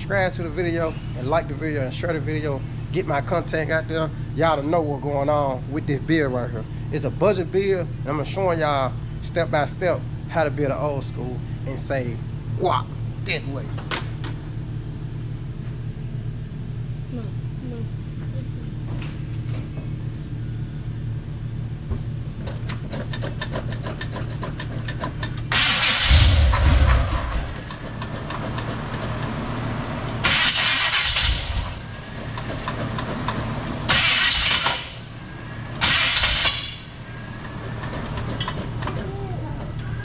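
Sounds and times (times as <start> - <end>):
engine cranking by starter: 22.4 - 40.0.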